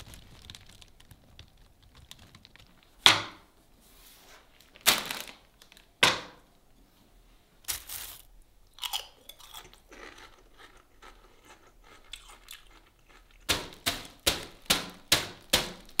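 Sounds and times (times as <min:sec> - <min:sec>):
potato chips crunching: 0:07.7 - 0:16.0.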